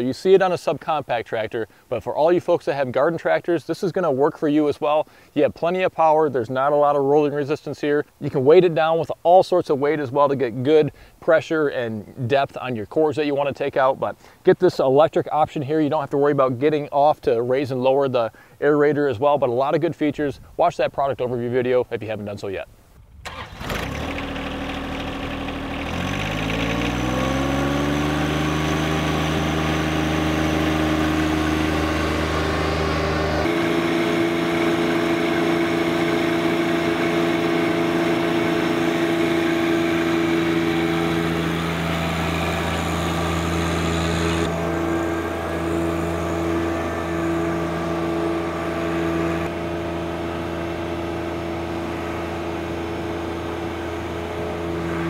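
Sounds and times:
tractor diesel engine running: 23.1s - 55.0s.

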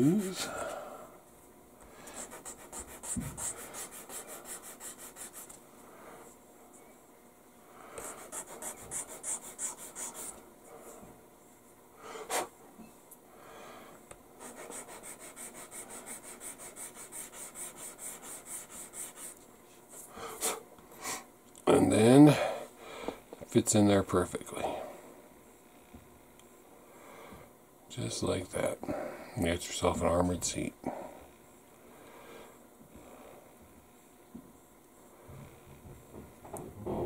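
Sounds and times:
sanding stick rubbing on metal: 2.2s - 5.5s, 8.1s - 10.3s, 14.4s - 19.4s.

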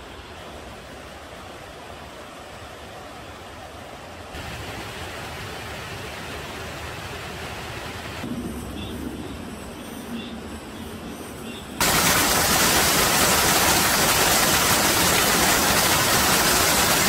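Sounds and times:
mountain stream rushing: 0.0s - 8.3s, 11.8s - 17.0s.

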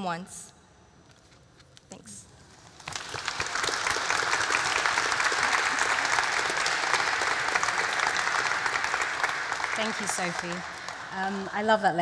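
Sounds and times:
audience applauding: 2.7s - 12.0s.

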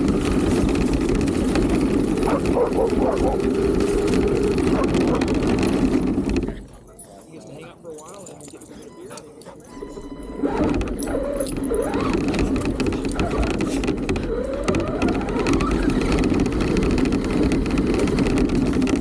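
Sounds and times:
tyres rolling on dirt and leaves: 0.0s - 8.6s, 9.9s - 19.0s
toy car motor whining: 9.2s - 19.0s.

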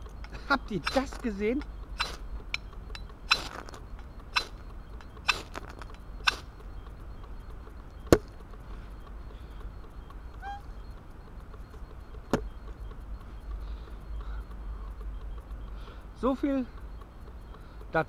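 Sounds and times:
sharp click: 0.0s - 8.6s
ferro rod rasping on axe: 0.8s - 1.2s.

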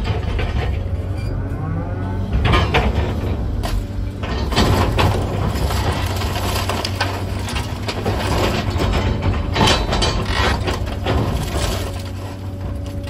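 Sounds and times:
excavator diesel engine running: 0.0s - 13.0s
debris cracking and crunching: 2.2s - 13.0s.

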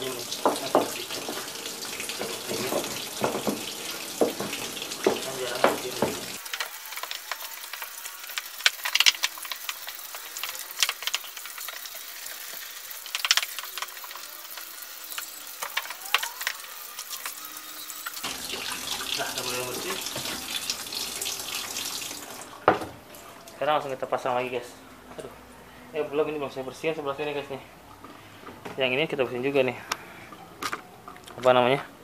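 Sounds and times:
water running and splashing in tub: 0.0s - 23.6s.

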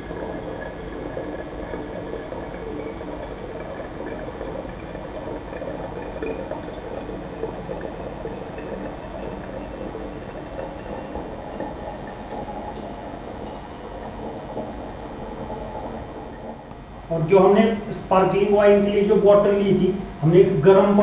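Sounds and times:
liquid trickling into bottle: 0.0s - 16.5s.

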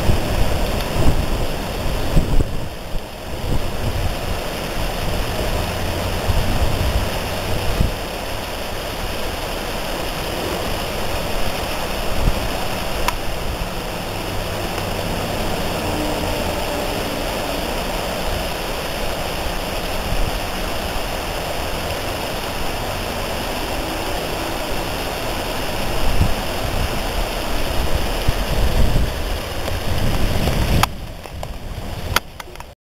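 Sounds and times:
low rumbles on microphone: 0.0s - 8.1s, 21.8s - 32.4s
flowing water rushing: 0.0s - 32.8s.

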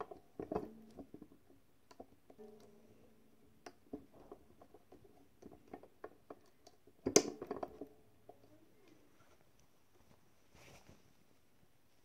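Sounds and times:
small metal clicks and taps: 0.0s - 9.0s.

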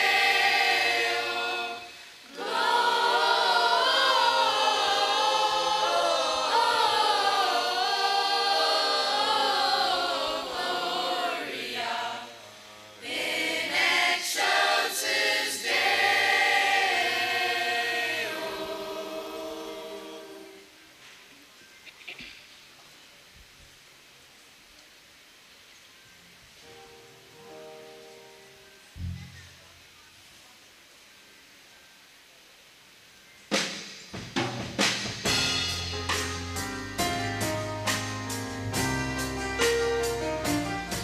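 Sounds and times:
children's choir singing: 0.0s - 20.8s.

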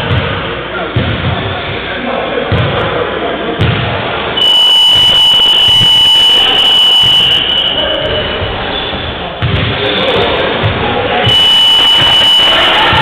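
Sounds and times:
scoreboard buzzer tone: 4.4s - 7.8s, 11.3s - 13.0s.

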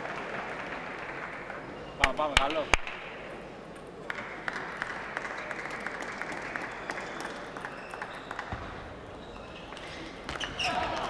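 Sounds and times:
spectators applauding: 0.0s - 1.7s, 4.1s - 8.5s.

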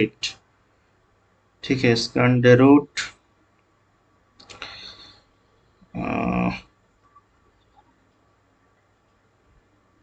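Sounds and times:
man humming: 6.0s - 6.6s.

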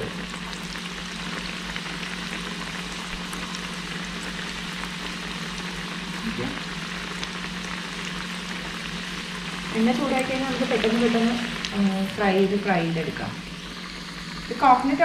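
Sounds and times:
batter sizzling in hot oil: 0.0s - 15.0s
low hum: 8.1s - 15.0s.

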